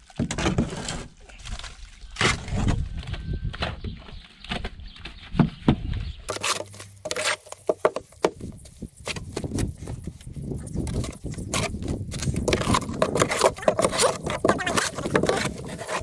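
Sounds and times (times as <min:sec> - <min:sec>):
shovel mixing wet mortar: 0:06.3 - 0:16.0.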